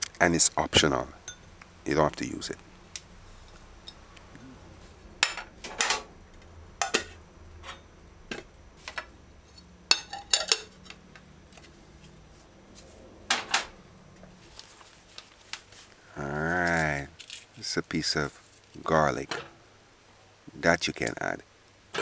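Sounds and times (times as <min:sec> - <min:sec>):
ceramic plates clinking: 0:09.9 - 0:10.9.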